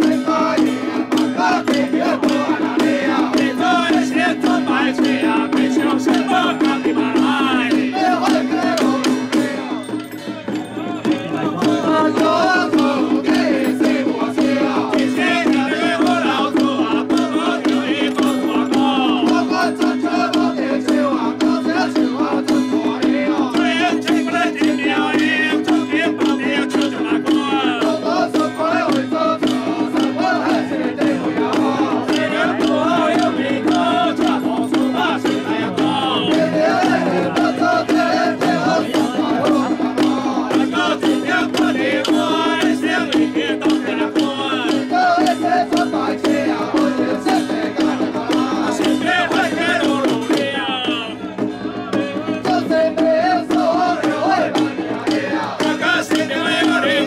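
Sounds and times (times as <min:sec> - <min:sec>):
high wavering melody: 0:33.7 - 0:39.4.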